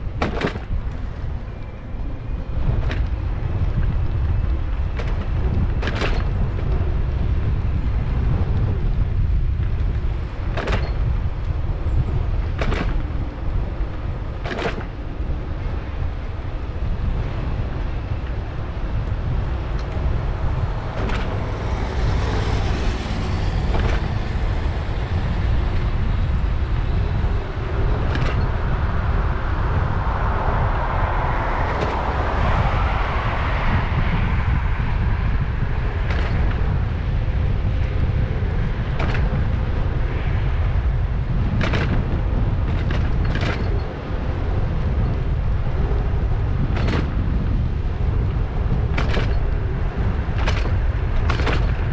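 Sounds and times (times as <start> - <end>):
wind rumble on microphone: 0.0 - 51.9
bike clicks and knocks: 0.1 - 1.3, 2.6 - 7.5, 8.1 - 15.3, 17.1 - 29.2, 35.9 - 39.9, 41.4 - 45.5, 46.6 - 51.9
motor vehicle passing: 17.5 - 41.6.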